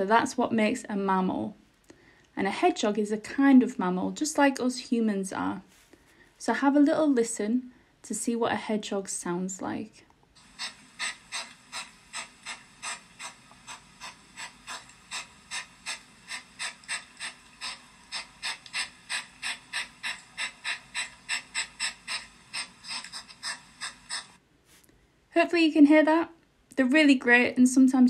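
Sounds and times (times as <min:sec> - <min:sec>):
hedgehog huffing and puffing: 0:10.4 - 0:24.4.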